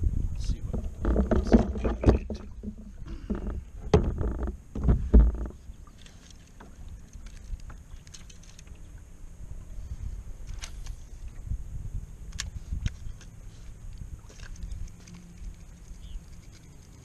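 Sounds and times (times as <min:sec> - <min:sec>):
gear knocking on kayak hull: 0:00.6 - 0:05.6.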